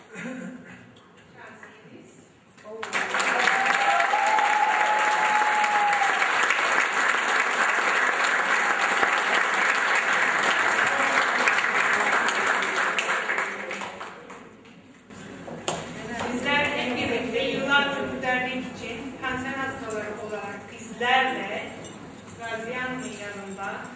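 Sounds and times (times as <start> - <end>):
audience applauding: 2.7 - 14.5.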